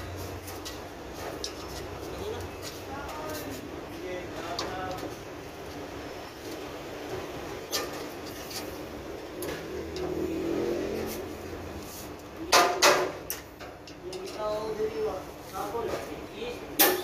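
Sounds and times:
engine humming: 5.2 - 12.4.

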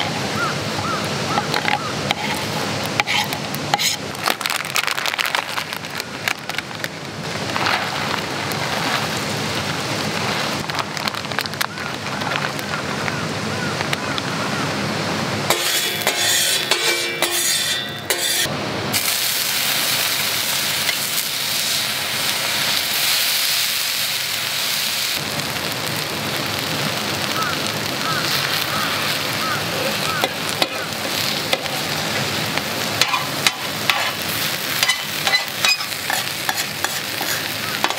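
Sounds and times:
cabbage sizzling on a griddle: 0.0 - 13.7, 15.5 - 37.9
plastic bag rustling: 3.8 - 12.8.

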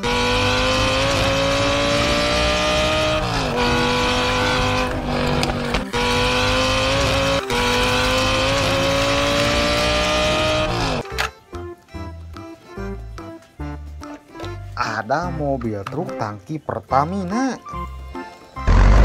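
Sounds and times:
car engine accelerating hard: 0.0 - 11.0, 18.6 - 19.0.

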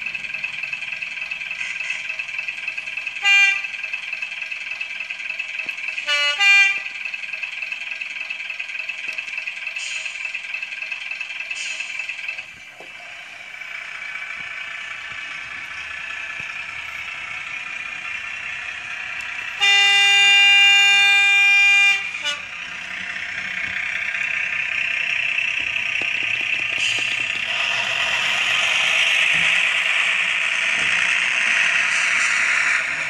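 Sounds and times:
diesel railbus engine sound: 0.0 - 33.0
train horn blast: 3.2 - 3.7, 6.0 - 6.9, 19.4 - 22.6.

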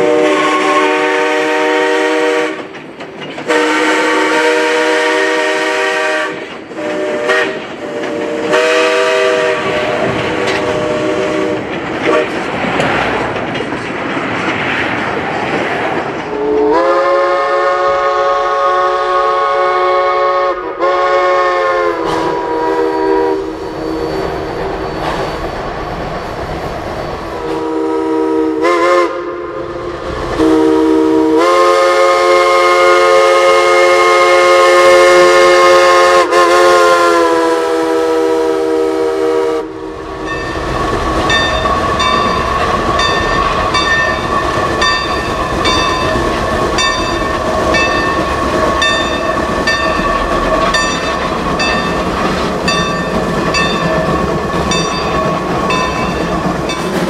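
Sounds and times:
chime steam whistle blasts: 0.0 - 2.6, 3.5 - 10.0, 16.3 - 25.2, 27.1 - 29.7, 30.4 - 40.7.

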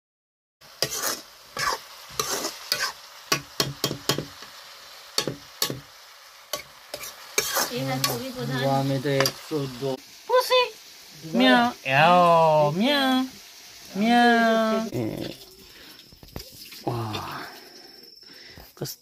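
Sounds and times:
vegetables sizzling in a pan: 0.6 - 19.0
spoon clanking against pan: 0.8 - 4.5, 5.2 - 5.9, 9.2 - 9.5.

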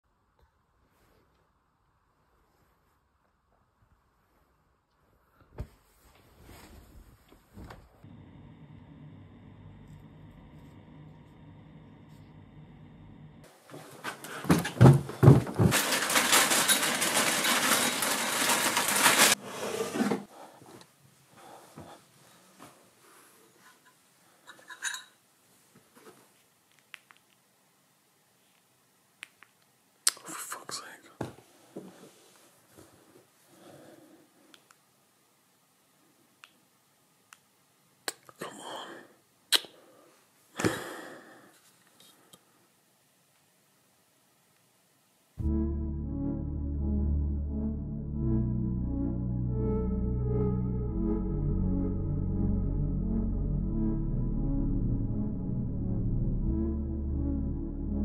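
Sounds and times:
rustling on sofa: 5.6 - 8.0
footsteps on carpeted stairs: 13.6 - 15.8, 20.6 - 22.0
plastic bag crinkling: 15.5 - 19.4.

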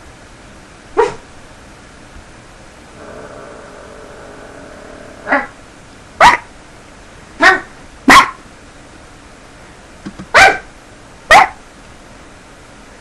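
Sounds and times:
dog barking: 1.0 - 1.3, 6.2 - 6.5, 7.4 - 8.4, 10.3 - 10.7, 11.3 - 11.6.

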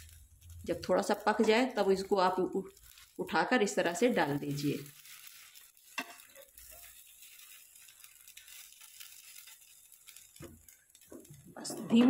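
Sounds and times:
bread sizzling in pan: 0.0 - 12.0
spatula clicking on pan: 5.3 - 11.2.

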